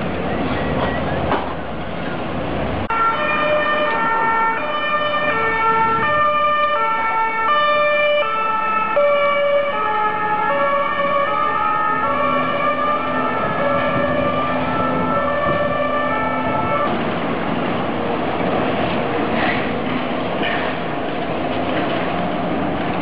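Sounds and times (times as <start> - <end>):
two-tone ambulance siren: 2.9 - 17.0.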